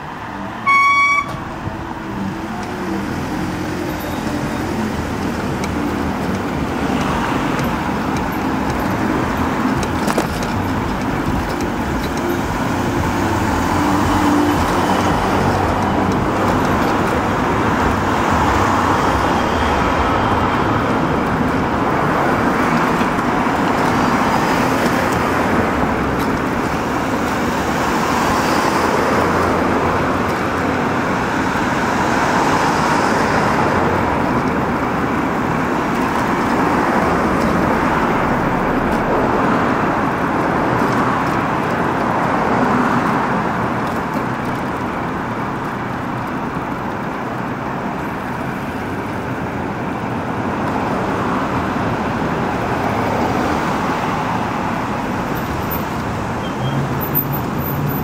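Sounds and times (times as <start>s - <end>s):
dense road traffic: 0.0s - 58.0s.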